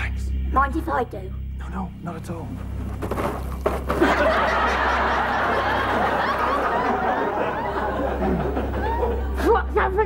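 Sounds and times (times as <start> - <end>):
audience laughing: 3.9 - 9.8.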